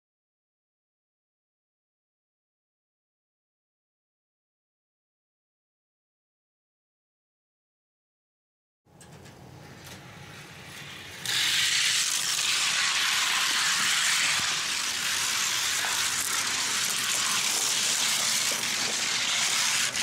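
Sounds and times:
toy cars rolling rattle: 11.2 - 20.0.

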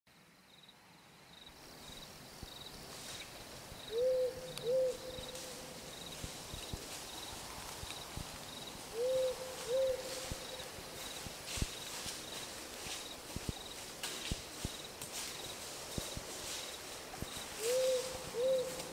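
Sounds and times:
faint high cricket chirp: 0.1 - 18.9
owl hooting: 3.9 - 5.6, 8.9 - 10.7, 17.6 - 18.9.

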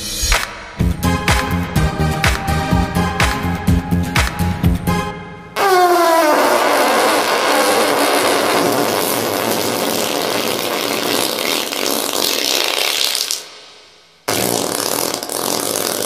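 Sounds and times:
fart sound effect: 5.6 - 13.6, 14.3 - 16.0.

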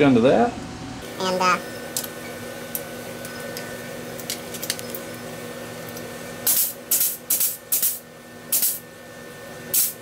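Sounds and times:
steady hum: 0.0 - 10.0.

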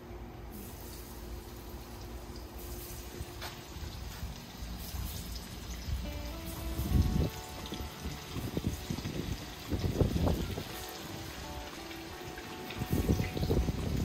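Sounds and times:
hot oil sizzling: 0.5 - 14.0
faint background music: 4.8 - 14.0.

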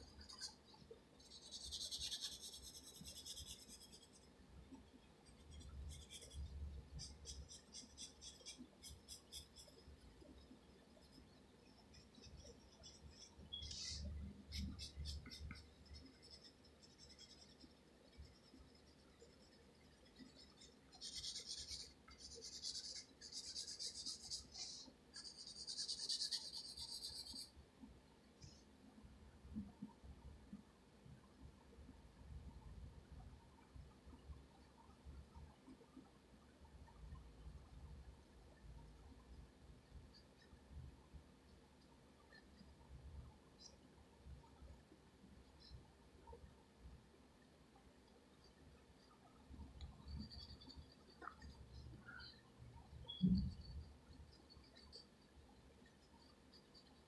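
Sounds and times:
pencil scratching on paper: 1.2 - 4.2, 5.2 - 9.8, 11.9 - 27.5.

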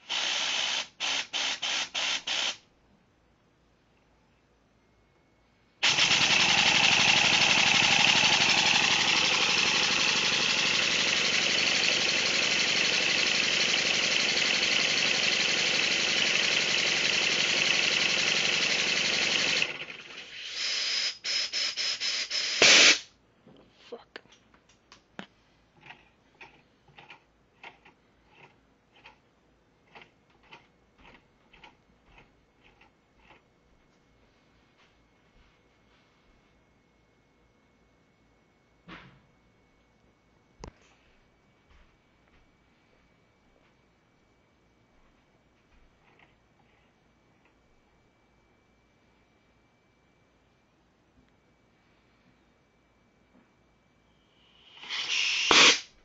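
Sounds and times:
model steam engine hissing exhaust: 0.0 - 2.6, 5.8 - 23.1, 54.4 - 56.0
engine sputtering: 5.8 - 20.3.

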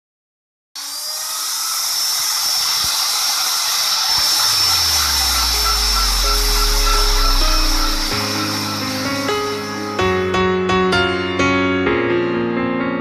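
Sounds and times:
router motor whining: 0.8 - 10.3.

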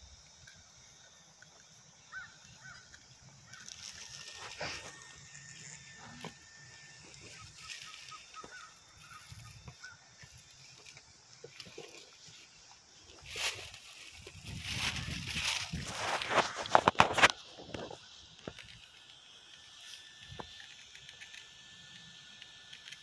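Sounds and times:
faint distant bird calls: 0.0 - 15.7.

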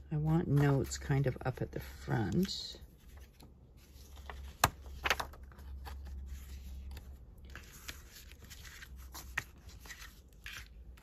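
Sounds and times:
paper rustling: 2.2 - 11.0.

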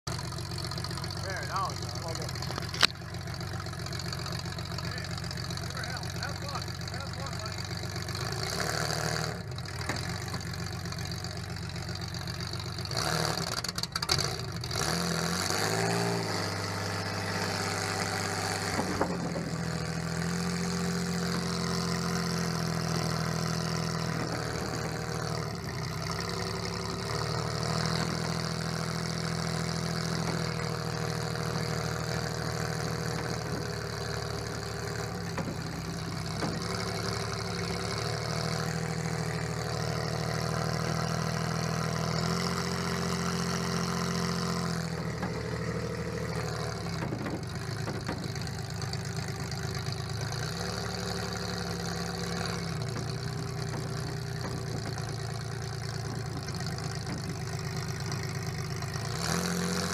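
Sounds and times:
sharp knocks: 32.9 - 38.7, 44.7 - 49.4, 51.7 - 58.9.

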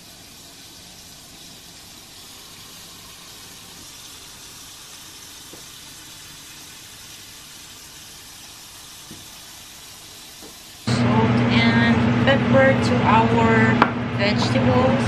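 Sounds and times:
shrimp sizzling on a grill: 0.0 - 10.9.

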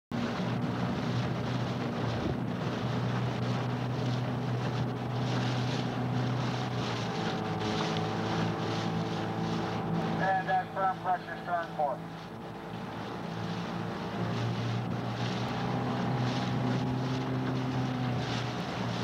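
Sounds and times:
motorboat engine running: 0.1 - 19.0
wind noise on microphone: 0.2 - 7.8.

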